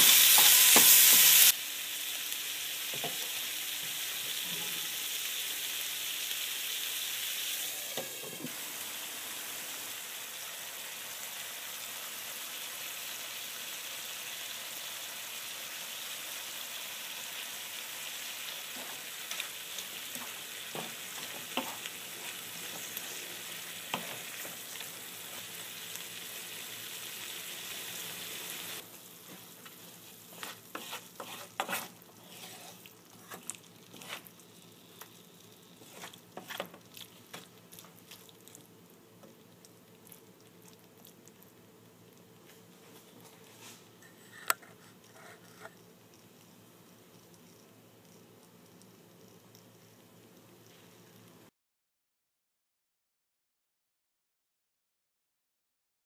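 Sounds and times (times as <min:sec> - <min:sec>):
food sizzling in a frying pan: 0:00.0 - 0:51.5
spatula scraping and tapping pan: 0:20.2 - 0:21.9, 0:29.3 - 0:34.3, 0:35.8 - 0:37.5.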